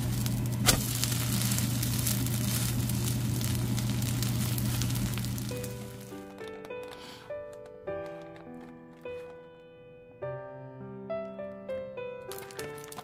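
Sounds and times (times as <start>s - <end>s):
low hum: 0.0s - 6.1s
pancake sizzling in oil: 0.0s - 6.1s.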